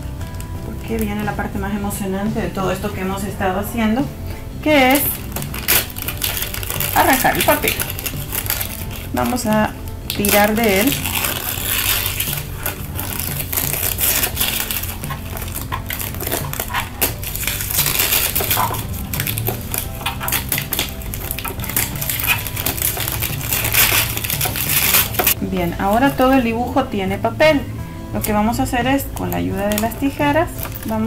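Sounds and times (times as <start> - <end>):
tracing paper tearing: 4.8 - 25.4.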